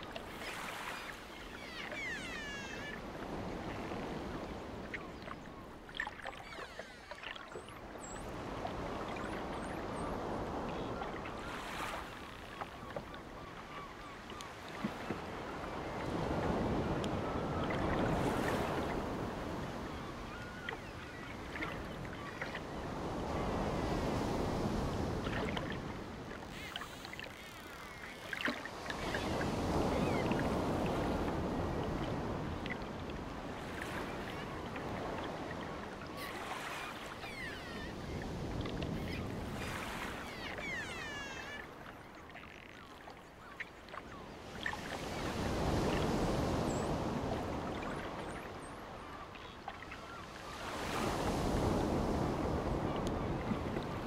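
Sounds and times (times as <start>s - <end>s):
short high bird calls: 0.8s - 3.0s, 40.0s - 41.7s.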